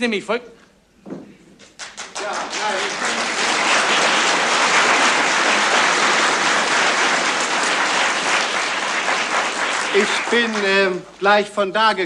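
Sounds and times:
audience applause: 1.8 - 11.2.

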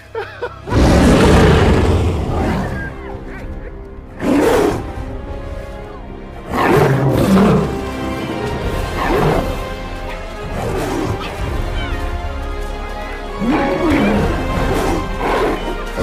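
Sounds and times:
dramatic orchestral music: 0.0 - 16.0
lion roaring and snarling: 0.6 - 3.0, 4.1 - 5.1, 6.4 - 11.7, 13.2 - 16.0.

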